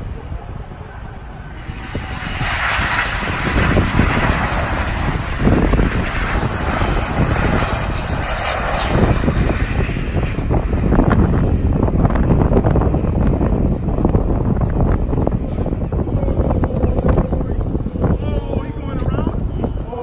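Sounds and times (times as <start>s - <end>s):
jet airliner engines rumbling: 0.0s - 20.0s.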